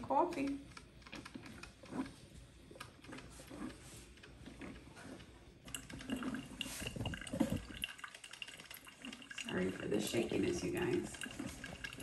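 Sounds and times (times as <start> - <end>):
coffee dripping into carafe: 5.6 - 12.0.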